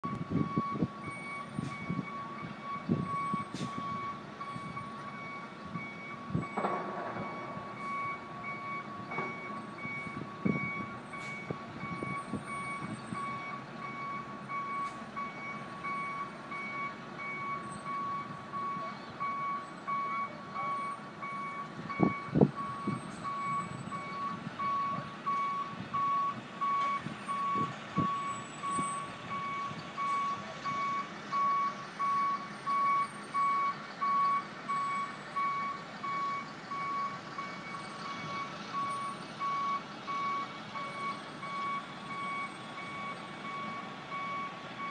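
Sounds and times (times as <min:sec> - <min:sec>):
truck reversing alarm beeping: 0:00.0 - 0:44.9
knocks and clanks: 0:06.4 - 0:07.6.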